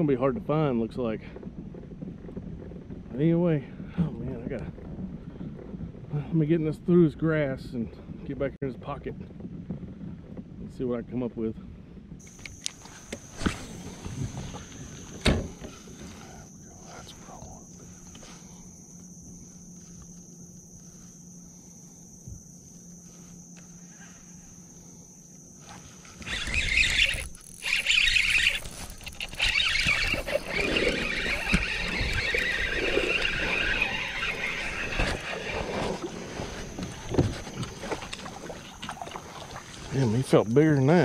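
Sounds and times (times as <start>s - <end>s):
fishing reel and handling noise: 12.2s - 41.0s.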